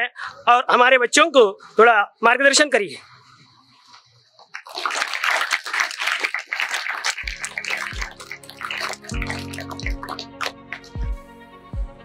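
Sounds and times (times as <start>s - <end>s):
children clapping: 4.5s - 11.0s
background music with low notes: 8.6s - 12.0s.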